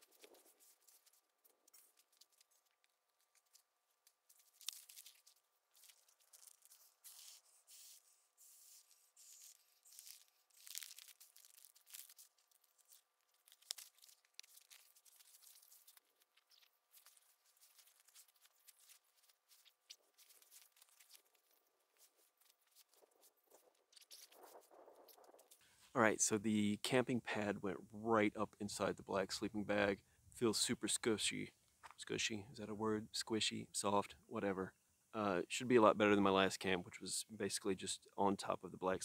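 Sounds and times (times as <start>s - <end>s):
nylon gear rustling and crinkling: 0.0s - 26.0s
faint steady hum: 0.0s - 39.0s.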